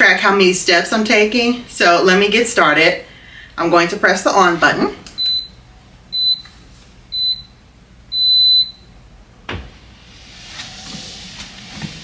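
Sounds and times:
treadmill start-up beeps: 5.2 - 6.5, 7.1 - 8.9.

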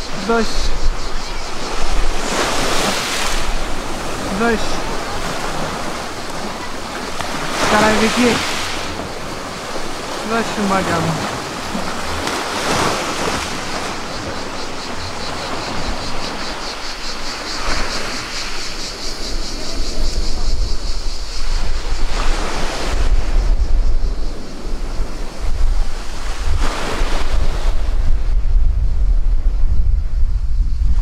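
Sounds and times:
sea waves washing onto shore: 0.0 - 23.4
wind buffeting microphone: 0.0 - 31.0.

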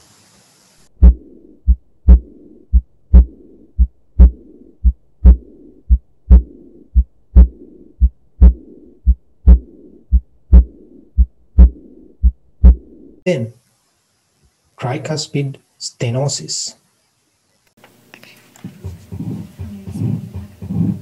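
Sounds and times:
blowing heart murmur: 1.0 - 13.1, 18.6 - 21.0
heartbeat through stethoscope: 1.0 - 13.2, 18.6 - 21.0.

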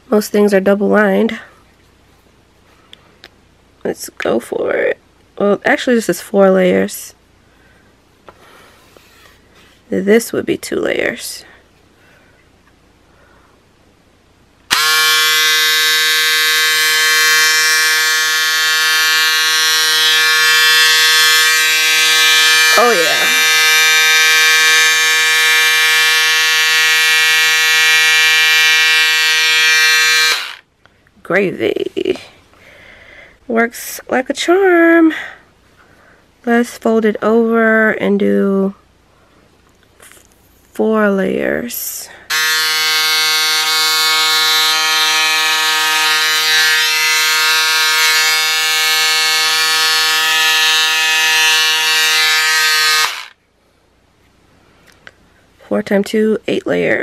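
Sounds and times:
electric scissors buzzing whine: 14.7 - 30.7, 42.3 - 53.4.

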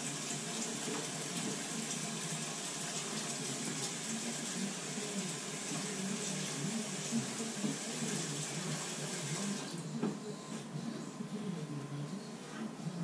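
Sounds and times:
shower water running: 0.0 - 9.8.

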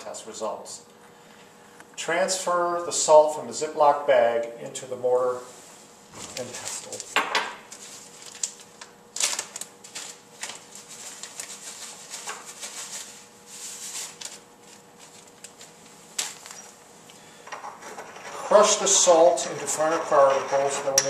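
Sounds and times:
plastic bag crinkling: 6.2 - 16.7.

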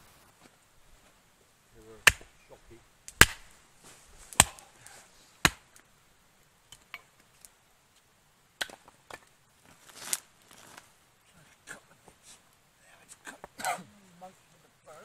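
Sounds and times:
split wood knocking: 2.0 - 2.3
hatchet chopping firewood: 2.0 - 2.4, 3.1 - 3.5, 4.3 - 4.6, 5.4 - 5.8, 8.6 - 9.2.

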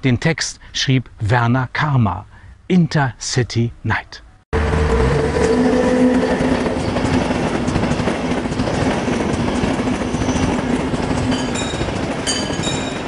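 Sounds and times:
train rolling past: 4.6 - 13.0
wheels clattering over track: 4.6 - 13.0.

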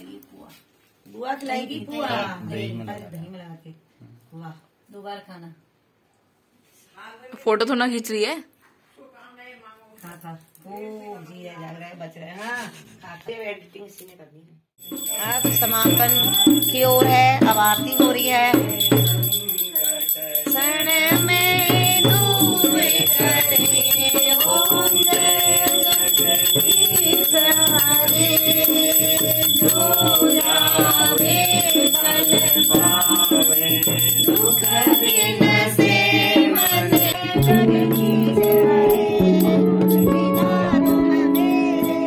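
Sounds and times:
held instrumental notes: 14.8 - 42.0
jingling rhythm: 14.8 - 42.0
group singing a hymn: 17.7 - 42.0.

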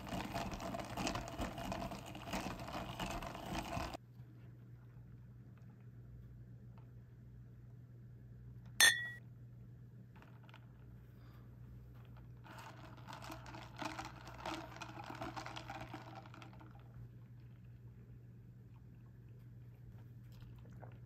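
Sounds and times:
cup with ice being shaken: 0.0 - 4.0, 12.1 - 17.0.

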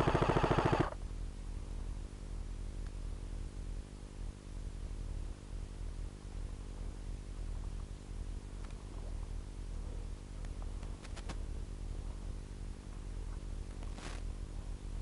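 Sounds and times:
airsoft rifle full-auto fire: 0.0 - 1.0
steady hiss and low hum: 0.0 - 15.0.

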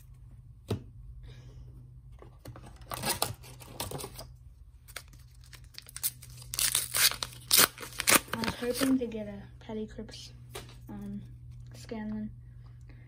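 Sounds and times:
plastic wrapper crinkling and tearing: 4.8 - 9.0.

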